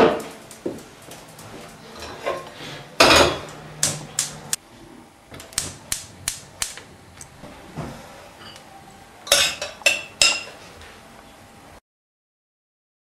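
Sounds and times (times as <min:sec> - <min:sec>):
spark igniter clicking: 0:03.8 - 0:04.6, 0:05.4 - 0:07.3.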